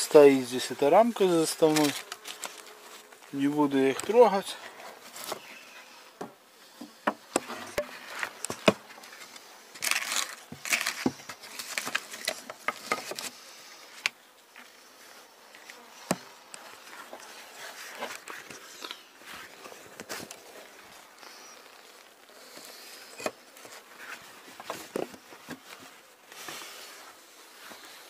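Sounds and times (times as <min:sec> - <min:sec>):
rustling: 0:00.0 - 0:28.0
wooden boards knocking and scraping: 0:06.2 - 0:08.9, 0:10.5 - 0:13.3.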